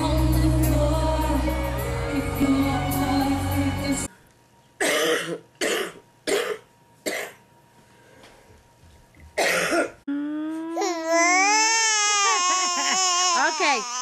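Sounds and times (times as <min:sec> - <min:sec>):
adult coughing: 0:04.8 - 0:07.4, 0:09.4 - 0:10.0
infant crying: 0:10.5 - 0:14.0.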